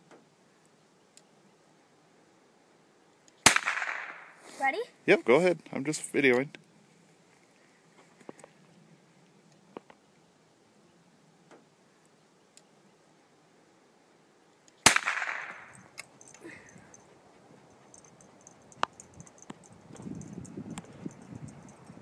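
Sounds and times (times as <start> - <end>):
rifle shot: 3.4 - 4.4, 14.8 - 15.8.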